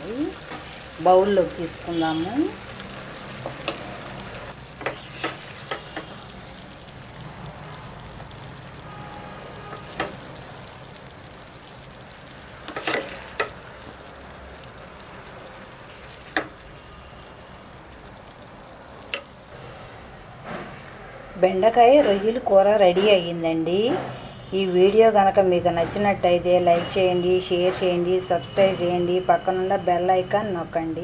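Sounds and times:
ladle scraping a pan: 4.8s - 6.2s, 12.7s - 13.6s.

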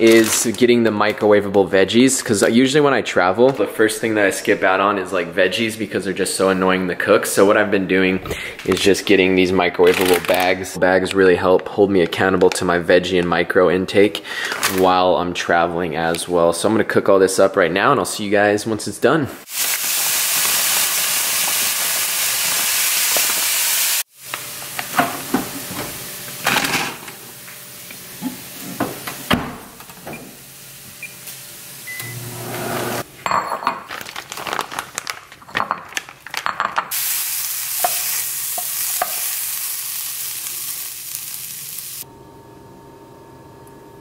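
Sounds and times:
meat sizzling in frying pan: 19.5s - 24.6s, 36.9s - 42.0s
microwave oven humming: 24.2s - 33.0s, 42.0s - 44.0s
kitchen clatter: 24.8s - 27.2s, 33.2s - 37.0s
microwave keypad beeps: 31.9s - 32.2s.

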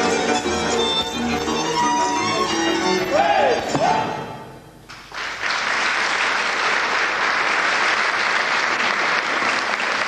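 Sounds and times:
music: 0.0s - 4.7s
audience applauding: 4.9s - 10.0s.

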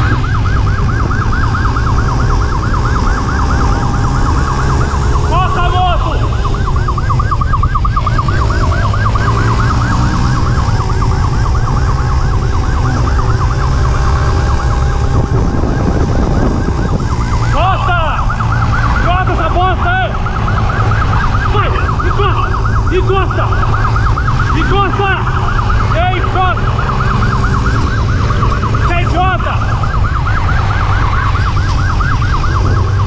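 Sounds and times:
motorcycle engine: 0.0s - 33.0s
motorcycle siren warbling: 0.0s - 33.0s
rising and falling sirens: 0.0s - 33.0s
wind rush: 10.0s - 24.0s.

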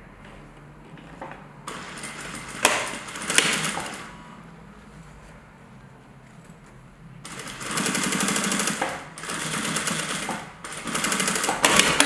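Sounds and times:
sewing machine stitching fast: 1.7s - 4.1s, 7.3s - 12.0s.

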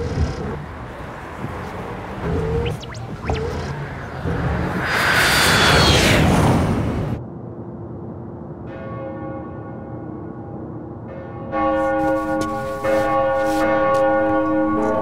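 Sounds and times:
church bells ringing: 8.7s - 15.0s.

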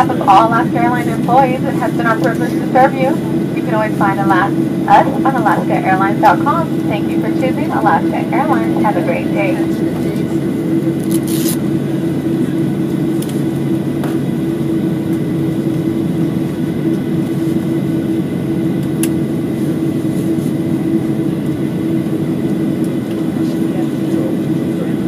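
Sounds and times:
cabin air hum: 0.0s - 22.0s
airliner engines idling: 0.0s - 25.0s.

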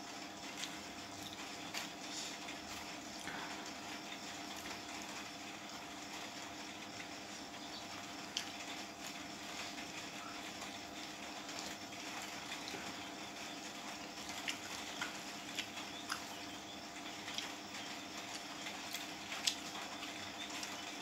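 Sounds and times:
background hum: 0.0s - 21.0s
chewing: 13.7s - 16.4s, 17.0s - 20.8s.

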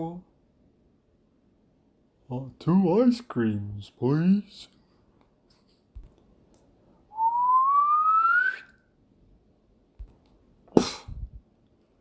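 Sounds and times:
rising whistle: 7.1s - 8.8s.

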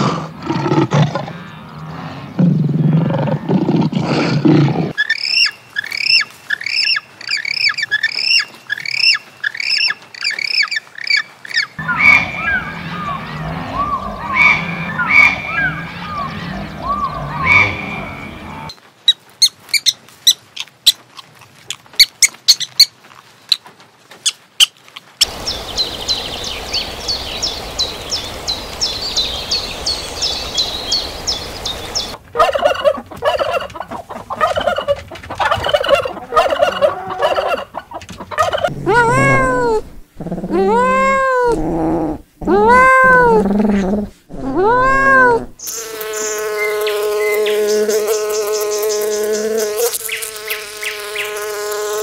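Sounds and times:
bird calling: 5.0s - 18.7s, 24.6s - 39.7s
steady hiss: 25.2s - 32.2s
kitten meowing: 38.8s - 39.8s, 44.4s - 45.5s.

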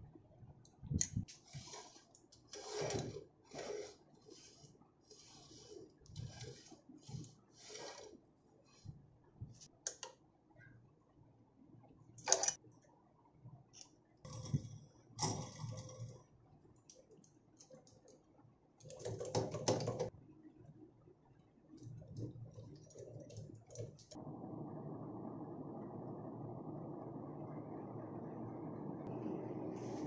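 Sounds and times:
metal clicks and scrapes: 1.0s - 8.2s, 13.8s - 18.2s.

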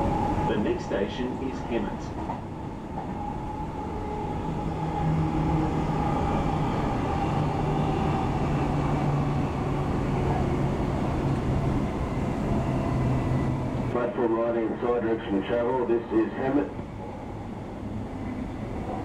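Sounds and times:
train running on track: 0.0s - 19.0s.

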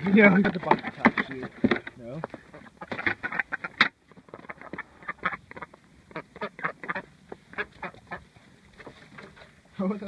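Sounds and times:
ducks quacking: 2.2s - 9.4s.

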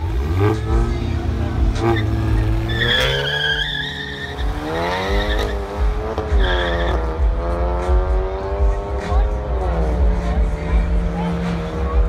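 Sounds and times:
car engines accelerating: 0.0s - 12.0s
tyres squealing: 1.7s - 7.0s.

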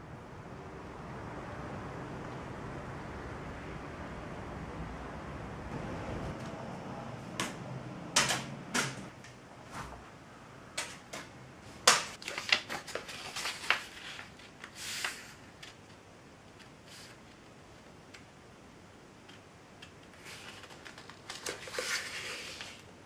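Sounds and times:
paper crackling: 11.8s - 17.5s, 19.3s - 22.9s
paper sliding rustle: 12.2s - 17.4s, 20.1s - 23.0s.

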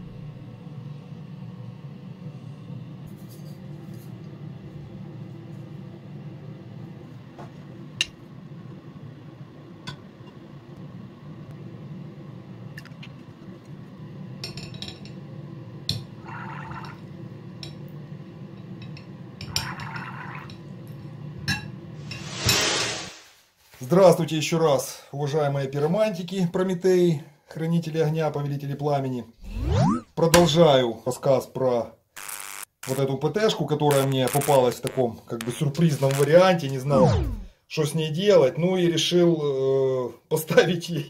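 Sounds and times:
steady low hum: 36.8s - 37.5s.

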